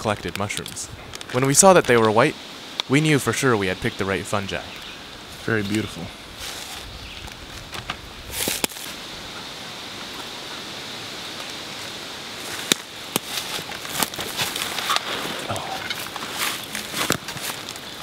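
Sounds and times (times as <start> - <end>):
steady outdoor hiss: 0.0 - 18.0
plastic bag crackling: 12.4 - 18.0.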